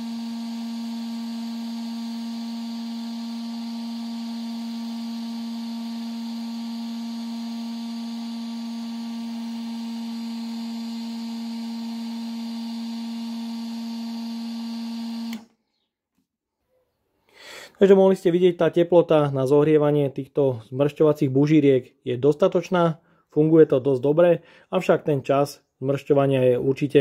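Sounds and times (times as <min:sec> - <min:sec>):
heat gun fan hum: 0:00.0 - 0:15.5.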